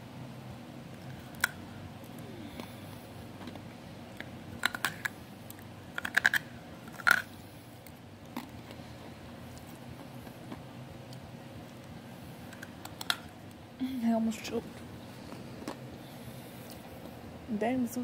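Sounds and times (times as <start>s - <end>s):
ice cube clicking against teeth: 4.2s - 7.3s.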